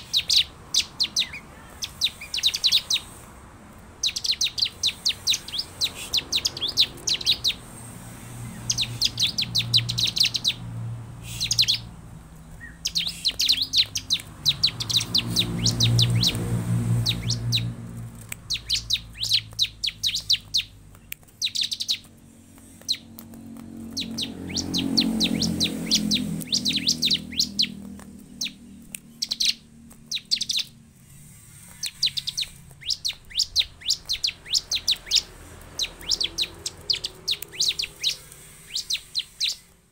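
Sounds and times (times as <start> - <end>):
bird singing high chirping trills: 0.0 - 3.2, 4.0 - 39.9
low drone: 12.9 - 20.3, 22.1 - 39.7.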